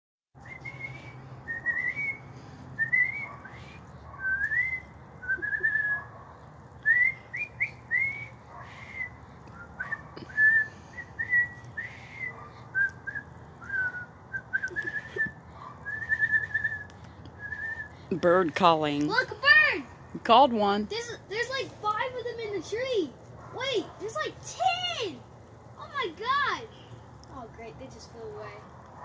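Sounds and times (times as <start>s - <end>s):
boy whistling bird calls: 0.4s - 6.2s, 6.8s - 18.1s.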